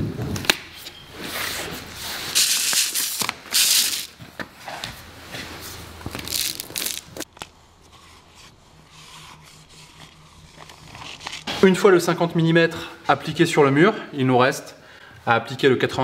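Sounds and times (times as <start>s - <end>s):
tape crinkling and scraping: 1.3s - 11.8s
adhesive tape ripping: 2.4s - 4.1s, 6.1s - 7.5s.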